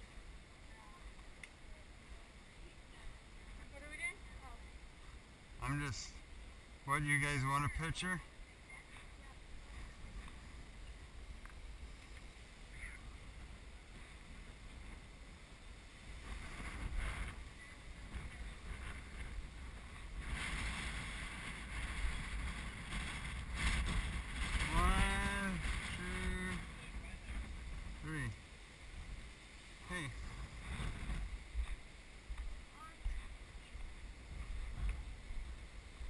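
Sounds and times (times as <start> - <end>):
wind buffeting microphone: 7.2 - 36.0.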